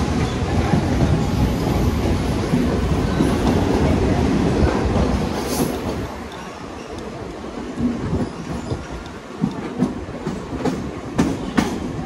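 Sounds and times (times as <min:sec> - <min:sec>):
train rumbling on track: 0:00.0 - 0:12.0.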